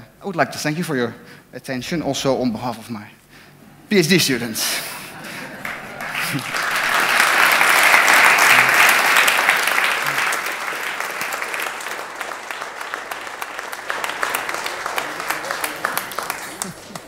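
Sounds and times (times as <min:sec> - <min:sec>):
audience applauding: 0:05.2 - 0:17.0.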